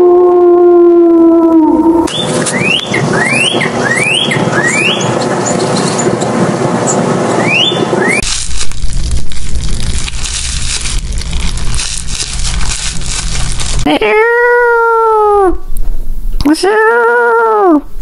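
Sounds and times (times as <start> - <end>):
wolf howling: 0.0 - 2.1
bird singing rising whistled notes: 1.9 - 5.3, 7.4 - 8.2
steady hiss: 8.2 - 13.9.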